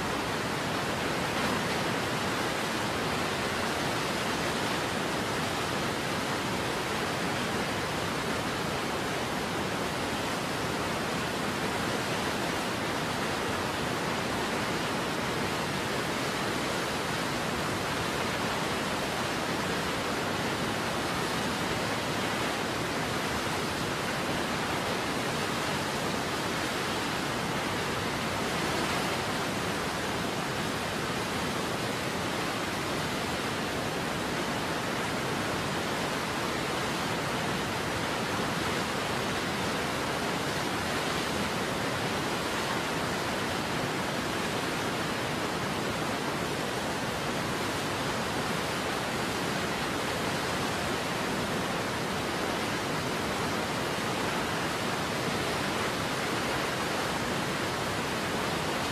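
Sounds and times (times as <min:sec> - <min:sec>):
waterfall roaring: 0:00.0 - 0:58.9.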